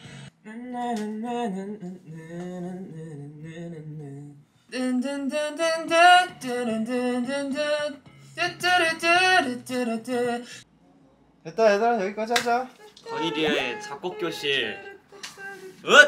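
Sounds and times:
person humming melody: 12.8 - 16.0.

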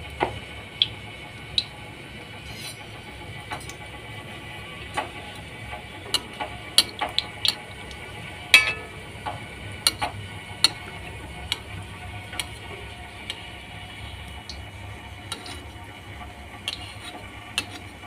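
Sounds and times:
food deep-frying in oil: 0.0 - 18.0
metal spoon clinking pan: 8.5 - 9.2.

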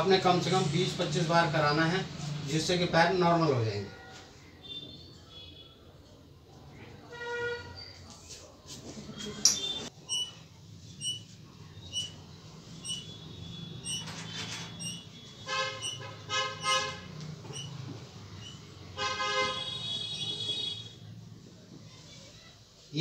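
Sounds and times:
vehicle horns: 3.7 - 5.9, 7.0 - 7.8, 9.2 - 9.9, 12.8 - 21.1.

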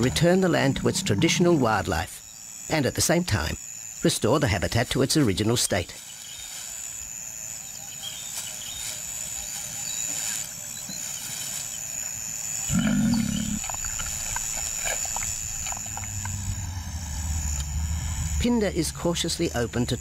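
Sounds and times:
lion growling: 0.0 - 1.7, 12.7 - 14.0
high insect whine: 0.0 - 20.0.

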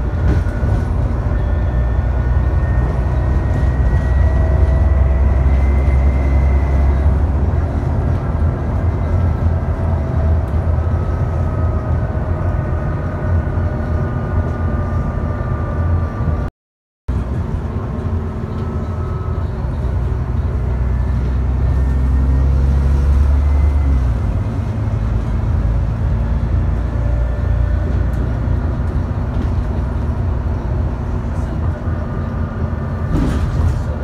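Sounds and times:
bus engine rumble: 0.0 - 16.5, 17.1 - 34.0
faint engine whine: 0.0 - 16.5, 17.1 - 34.0.

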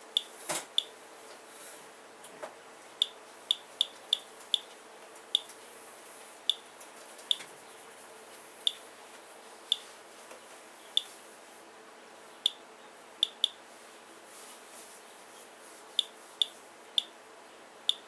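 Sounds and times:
faint steady hum: 0.0 - 18.0
geiger counter clicking: 13.2 - 13.6.

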